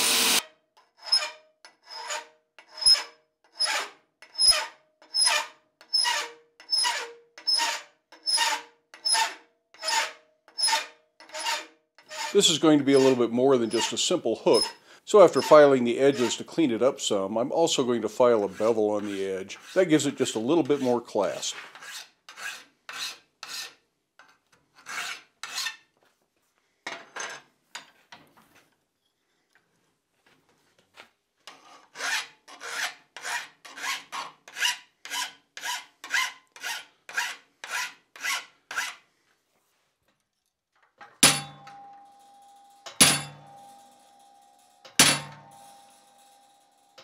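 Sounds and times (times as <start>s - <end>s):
file rasping on steel: 0.0s - 16.4s, 18.4s - 25.9s, 31.5s - 39.1s
hammer ringing on chisel: 41.2s - 47.0s.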